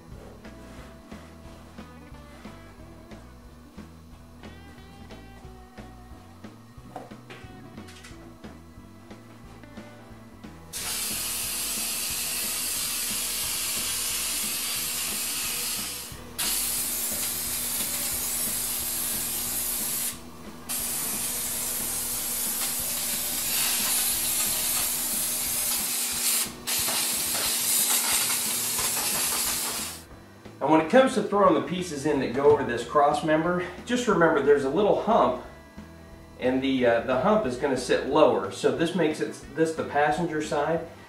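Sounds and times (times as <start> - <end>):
aerosol spray hissing: 10.8 - 30.1.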